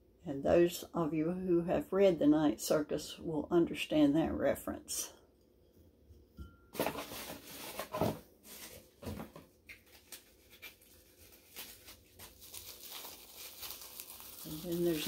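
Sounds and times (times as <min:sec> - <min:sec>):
packing material rustling: 0:06.8 - 0:15.0.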